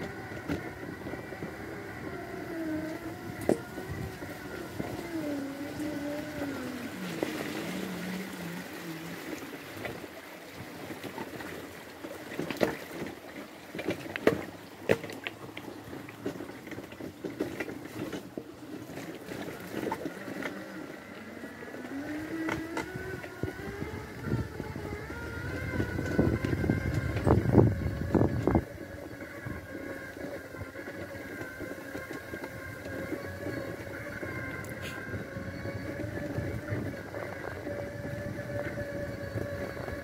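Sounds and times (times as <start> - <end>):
wheels clattering over stones: 0.0 - 8.3, 10.8 - 40.0
electric motor whining: 0.0 - 10.1, 18.8 - 40.0.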